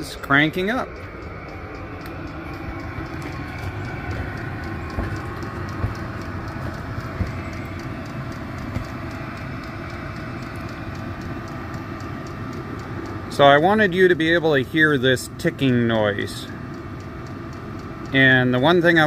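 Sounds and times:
heater fan and burner rush: 0.0s - 19.0s
light regular ticking: 0.0s - 19.0s
louder thumps: 3.2s - 9.1s.

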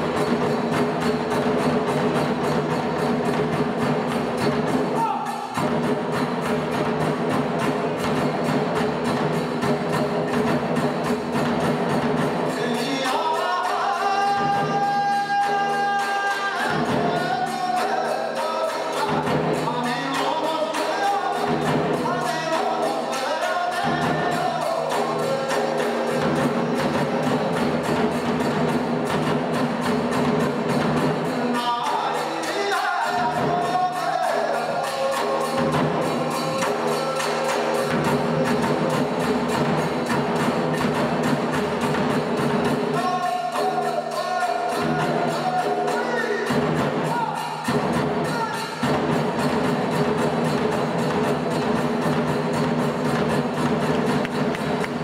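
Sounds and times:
drum beat: 0.0s - 55.0s
hand cymbals: 0.0s - 55.0s
voices chanting: 31.2s - 40.2s.

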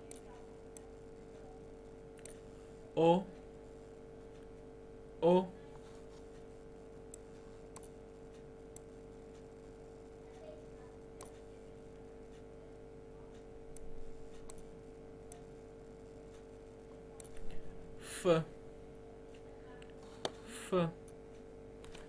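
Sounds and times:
steady electrical hum: 0.0s - 22.0s
computer mouse clicking: 0.1s - 1.4s, 2.1s - 2.4s, 7.1s - 9.5s, 11.2s - 11.5s, 13.3s - 14.7s, 17.2s - 17.6s.

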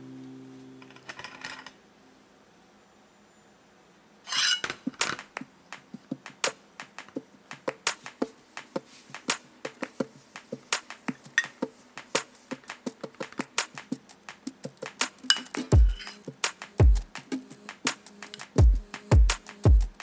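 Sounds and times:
plate clattering down: 4.3s - 5.2s
ceramic plates clicking: 4.3s - 5.3s, 15.3s - 16.2s.

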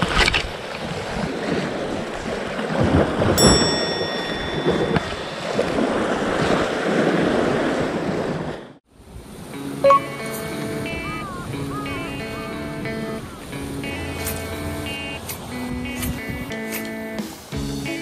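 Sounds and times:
sea washing against rocks: 0.0s - 8.7s
wind on microphone: 0.0s - 9.3s, 15.4s - 16.5s
brief high ringing tone: 3.4s - 6.1s, 9.8s - 10.4s.

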